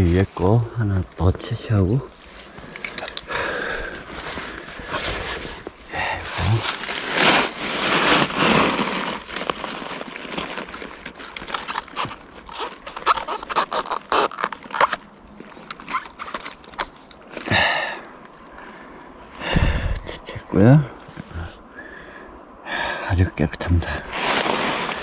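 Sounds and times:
mushrooms rustling as picked: 0:00.0 - 0:19.4, 0:23.8 - 0:25.0
sharp snaps and crackles: 0:06.3 - 0:17.5.

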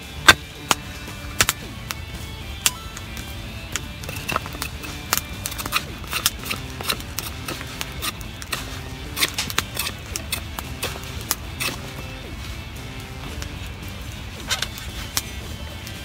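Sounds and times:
knife whittling wood: 0:03.8 - 0:12.2.

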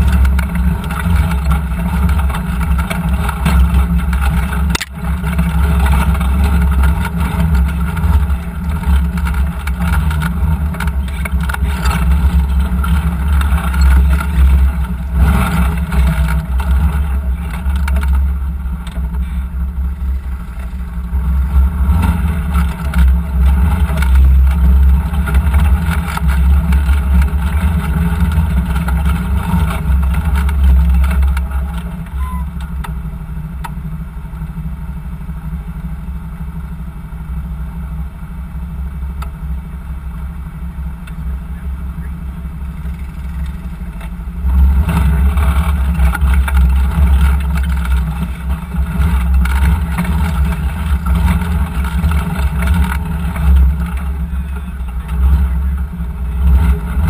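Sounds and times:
knocks and clatter on rocks: 0:00.0 - 0:19.2, 0:22.0 - 0:33.0, 0:44.8 - 0:55.5
vehicle engine rumbling: 0:00.0 - 0:57.0.

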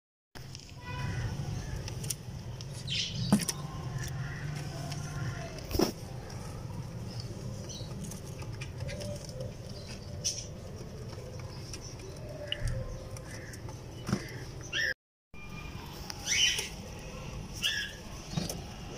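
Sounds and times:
pigeons cooing: 0:04.2 - 0:14.9.

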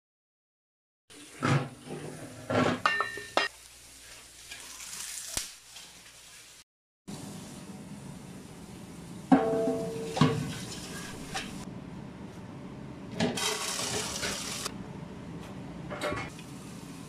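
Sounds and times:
metal pot clanking: 0:09.3 - 0:10.6.

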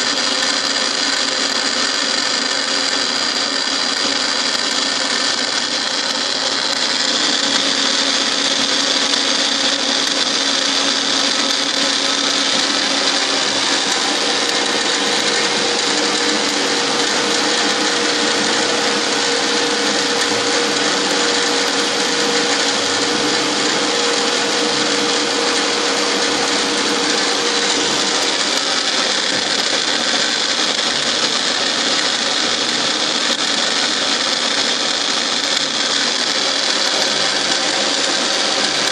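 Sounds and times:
milling machine whine: 0:00.0 - 0:38.9
steady tone: 0:10.2 - 0:30.5.

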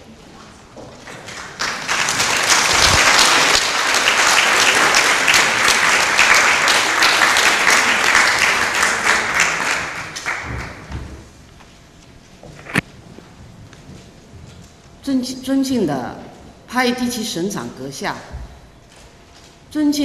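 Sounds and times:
audience applauding: 0:01.0 - 0:11.0.

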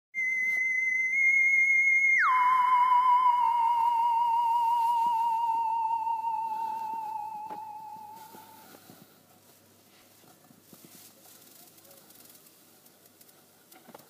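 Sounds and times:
sliding electronic tone: 0:00.2 - 0:08.8.

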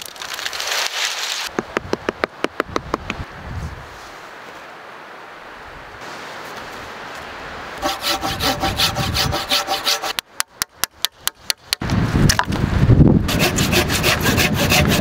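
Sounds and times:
hand saw cutting wood: 0:07.8 - 0:10.2, 0:13.3 - 0:15.0.

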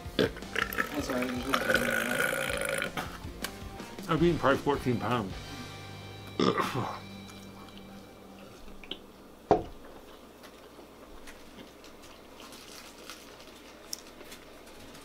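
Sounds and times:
person eating sandwich: 0:09.9 - 0:15.0.

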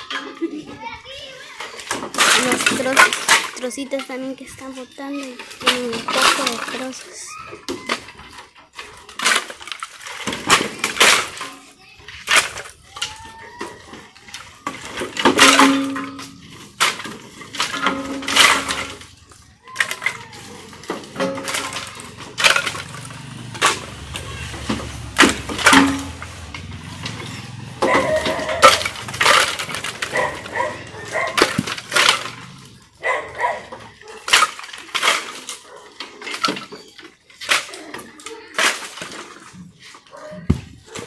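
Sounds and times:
firewood knocking onto woodpile: 0:20.9 - 0:27.2.

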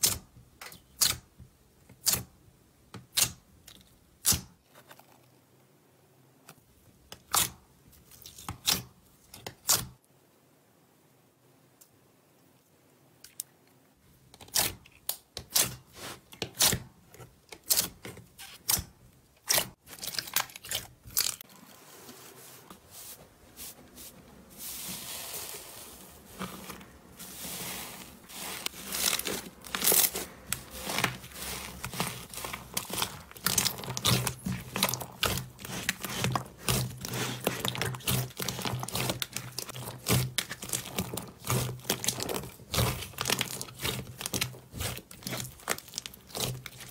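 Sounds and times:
slime clicking and crackling: 0:28.3 - 0:46.9.

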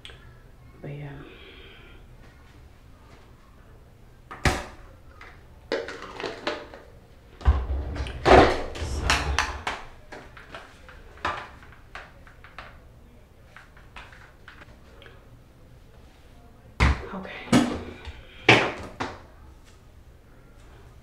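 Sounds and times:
heavier bump: 0:07.4 - 0:10.1
clattering and rustling: 0:07.4 - 0:11.6.

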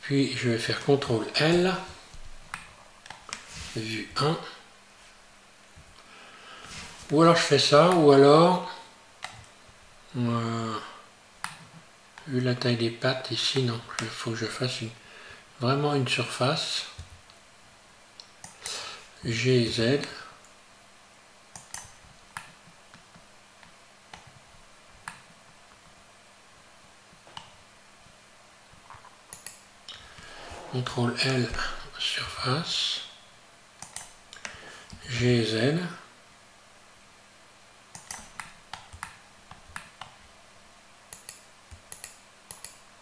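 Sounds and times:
faint steady hum: 0:00.0 - 0:43.0
mouse and keyboard clicking: 0:18.3 - 0:18.8, 0:21.5 - 0:23.2, 0:29.3 - 0:29.6, 0:33.8 - 0:34.6, 0:37.9 - 0:40.2, 0:41.1 - 0:42.8.

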